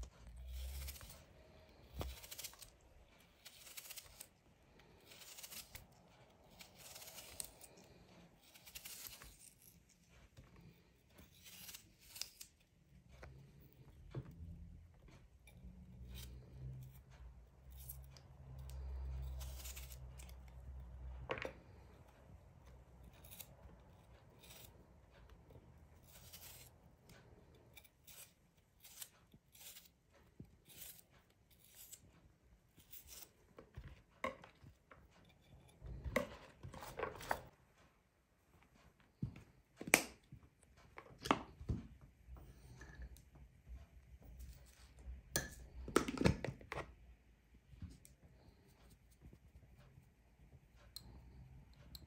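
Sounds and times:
knife slicing potato: 0.0 - 37.5.

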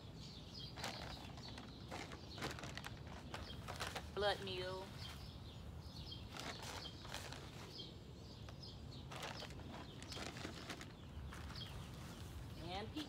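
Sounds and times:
small birds chirping: 0.0 - 13.0
plastic bags crinkling: 0.8 - 4.2, 6.3 - 7.7, 9.1 - 11.8.

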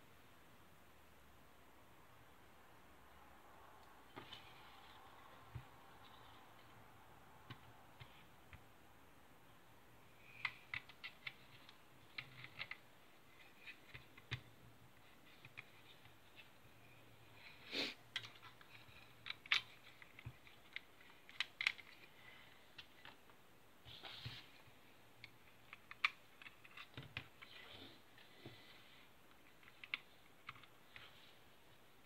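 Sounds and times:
small parts clicking and tapping: 10.2 - 14.5, 18.1 - 22.1, 25.2 - 27.5, 29.3 - 31.2.

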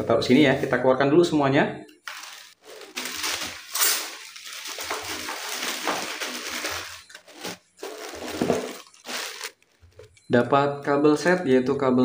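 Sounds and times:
plastic bags crinkling: 2.0 - 10.2.

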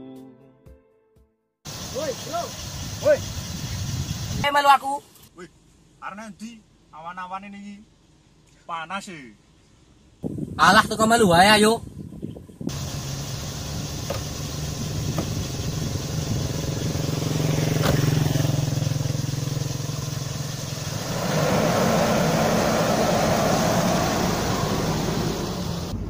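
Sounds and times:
car engine idling: 12.7 - 26.0
car door shutting: 14.0 - 14.4, 15.0 - 15.4, 17.7 - 18.4
car door clicks: 17.8 - 18.1.

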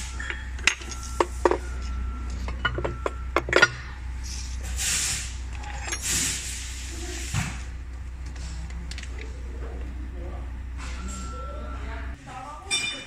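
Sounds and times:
metal clinks and knocks: 0.0 - 4.4
steady low hum: 0.0 - 12.7.

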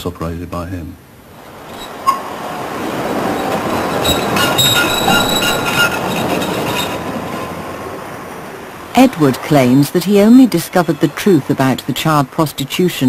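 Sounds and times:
train rumbling past: 1.4 - 11.9
high wheel squeal: 1.7 - 7.6.

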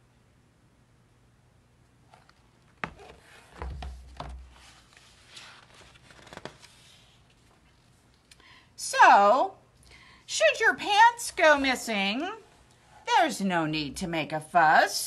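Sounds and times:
paper pages rustling: 2.1 - 8.0
book knocks and thud: 2.8 - 4.6.

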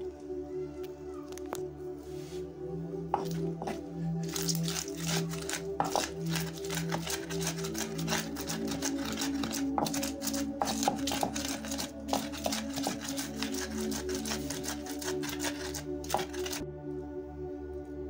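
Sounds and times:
background music with held tones: 0.0 - 18.0
pestle grinding in bowl: 3.2 - 16.6.

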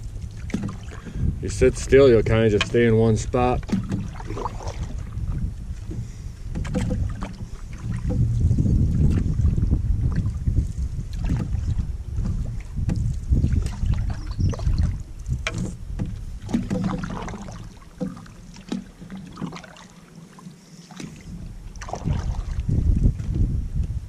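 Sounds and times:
low rumble: 0.0 - 16.5
paddle strokes splashing: 0.0 - 23.4
knocks on canoe hull: 0.4 - 1.2, 2.5 - 9.4, 12.2 - 19.8.

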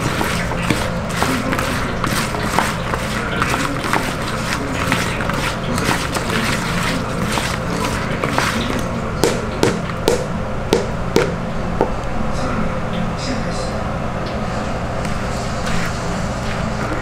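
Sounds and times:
wet sticky scraping and squelching: 0.0 - 10.1
ladle knocking against bowl: 7.2 - 11.4.

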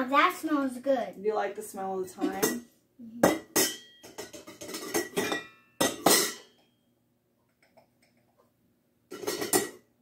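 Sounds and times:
metal spoon clinking on glass jars: 3.3 - 6.8.

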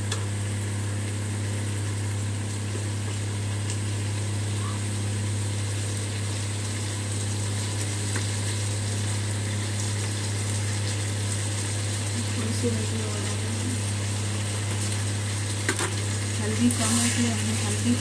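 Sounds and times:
food frying hiss: 0.0 - 18.0
steady low hum: 0.0 - 18.0.

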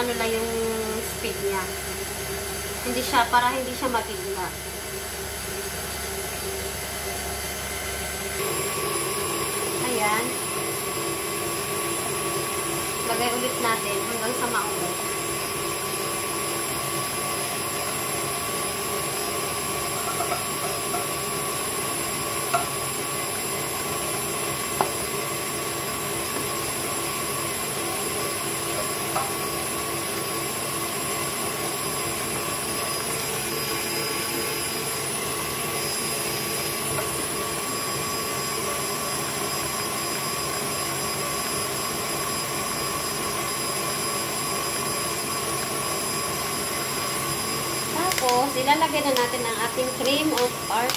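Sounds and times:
stand mixer motor whine: 0.0 - 50.9
whisk beating in metal bowl: 8.3 - 38.0.

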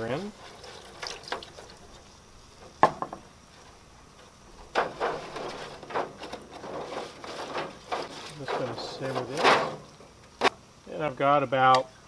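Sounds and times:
utensil scraping foil pan: 0.0 - 2.0, 4.6 - 10.0
liquid sloshing: 0.4 - 2.1.

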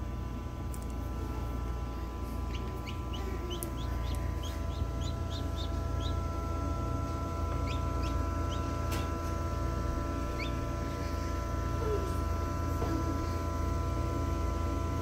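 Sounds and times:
incubator hum: 0.0 - 15.0
chicks peeping: 2.4 - 9.1, 10.2 - 10.7.

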